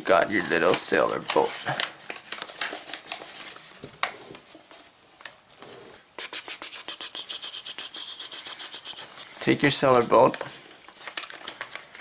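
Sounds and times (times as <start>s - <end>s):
paper rustling and crinkling: 0.0s - 5.6s, 9.0s - 12.0s
fast high ticks: 6.2s - 9.1s.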